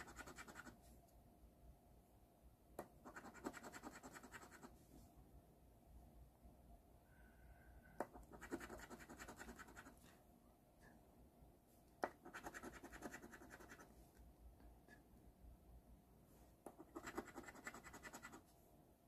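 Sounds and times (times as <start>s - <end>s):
coin scraping scratch card: 12.2s - 13.8s, 16.9s - 18.4s.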